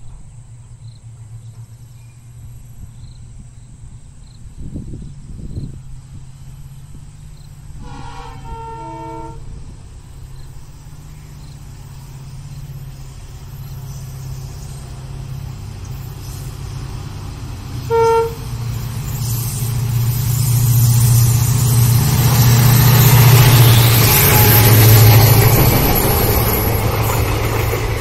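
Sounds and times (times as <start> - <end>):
locomotive engine humming: 0.0 - 28.0
wheel and rail noise: 0.0 - 28.0
train horn blast: 7.8 - 9.6, 17.8 - 18.7, 23.1 - 25.0.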